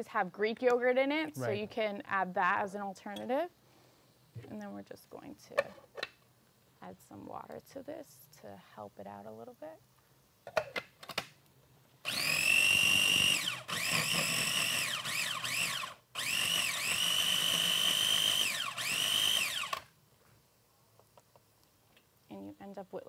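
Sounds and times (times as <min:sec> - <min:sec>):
food processor motor whine: 0:12.1 - 0:19.9.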